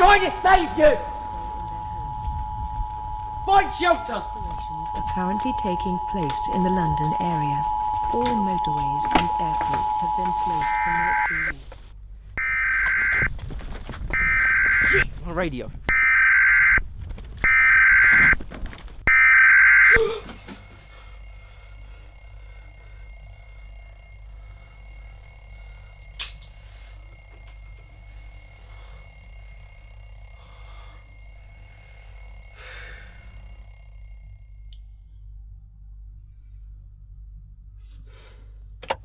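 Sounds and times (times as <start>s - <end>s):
alarm ringing in pulses: 0.0s - 11.6s, 14.2s - 15.0s, 19.1s - 35.2s
steady low hum: 0.0s - 14.4s, 19.9s - 39.0s.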